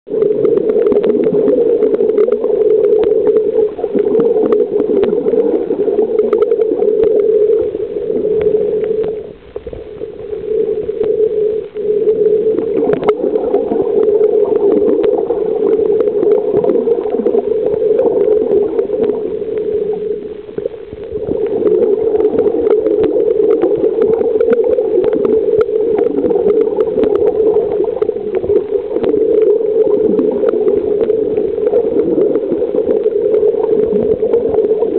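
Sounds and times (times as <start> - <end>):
underwater rush of water: 0.1 - 34.9
faint clicks: 6.0 - 13.2.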